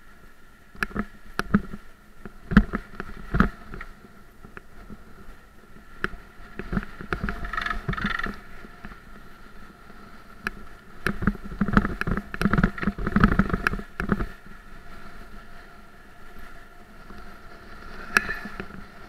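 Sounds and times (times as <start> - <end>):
tyre and wind rumble: 0.0 - 19.0
bike knocks and rattles over bumps: 0.8 - 5.1, 6.0 - 9.0, 11.0 - 14.4.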